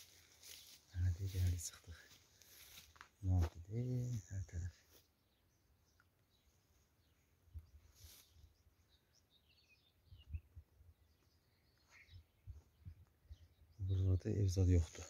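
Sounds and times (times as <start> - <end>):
footsteps in tall grass: 0.0 - 5.1, 7.7 - 8.6
faint bird chirps: 0.0 - 15.0.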